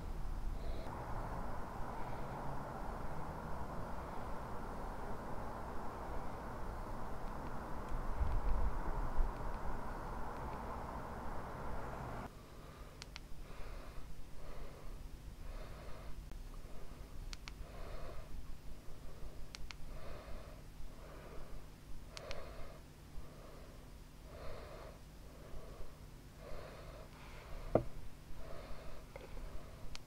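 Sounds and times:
person breathing: 0.4s - 8.2s, 11.6s - 30.0s
faint sharp clicks: 13.0s - 13.3s, 17.3s - 17.6s, 19.5s - 19.8s, 22.1s - 22.5s
low thump: 27.7s - 28.0s.

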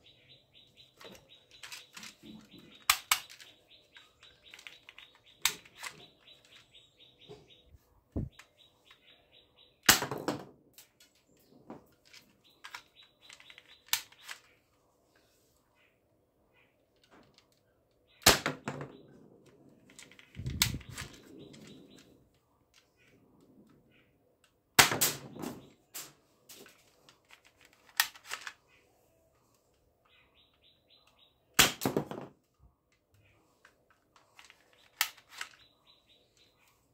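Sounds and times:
handling clatter and rustle: 10.8s - 14.7s, 25.3s - 28.6s, 33.2s - 35.7s
toy pistol snaps: 13.9s - 14.4s.

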